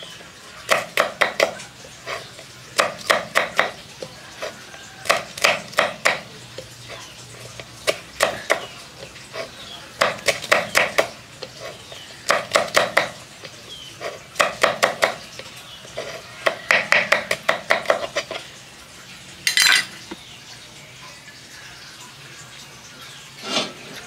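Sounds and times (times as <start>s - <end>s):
knife chopping on wooden board: 0.7s - 1.6s, 2.7s - 6.3s, 7.8s - 8.8s, 10.0s - 13.2s, 14.0s - 18.4s.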